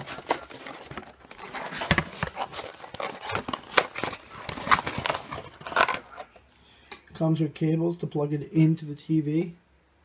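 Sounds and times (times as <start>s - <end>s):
packaging rustling and scraping: 0.0s - 6.4s.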